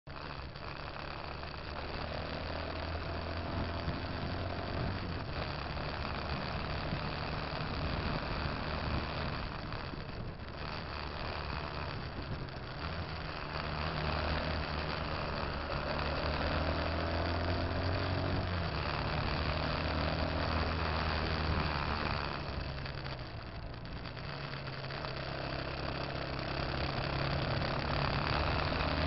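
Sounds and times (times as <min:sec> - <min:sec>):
car engine running: 0:00.0 - 0:29.0
wind and road noise: 0:00.0 - 0:29.0.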